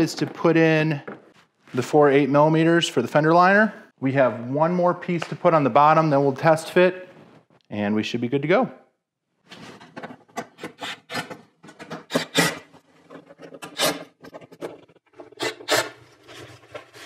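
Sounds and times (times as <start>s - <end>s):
plastic scraping and rubbing: 9.5s - 17.0s.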